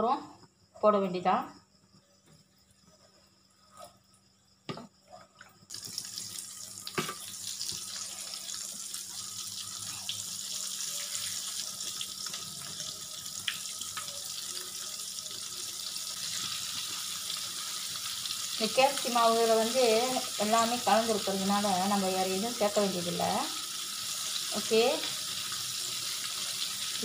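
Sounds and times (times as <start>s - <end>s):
chicken sizzling in hot oil: 5.7s - 27.0s.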